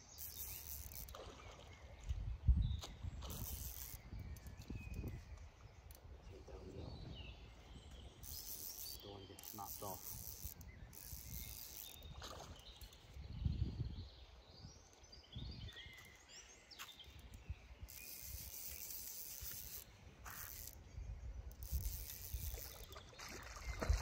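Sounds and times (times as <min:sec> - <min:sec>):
birds chirping: 0:00.0 - 0:24.0
wind buffeting microphone: 0:01.9 - 0:08.3, 0:10.4 - 0:16.4, 0:20.2 - 0:24.0.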